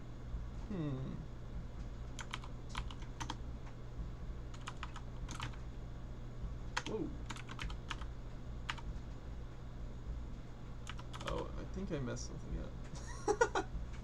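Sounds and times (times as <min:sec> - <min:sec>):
low electrical hum: 0:00.0 - 0:14.0
keyboard keystrokes clicking: 0:02.2 - 0:03.4, 0:04.5 - 0:05.6, 0:06.8 - 0:08.1, 0:10.8 - 0:11.4.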